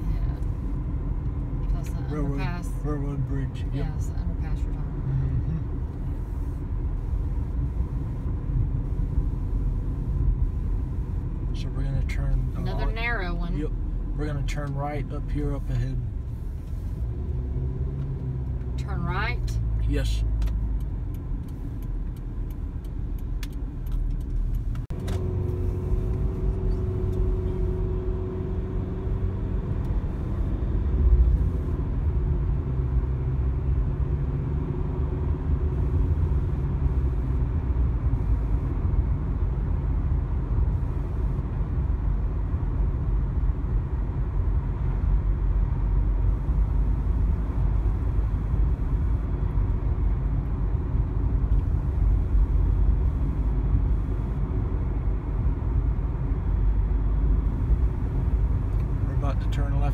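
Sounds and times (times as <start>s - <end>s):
car road and engine rumble: 0.0s - 59.9s
faint engine tone: 44.9s - 55.4s.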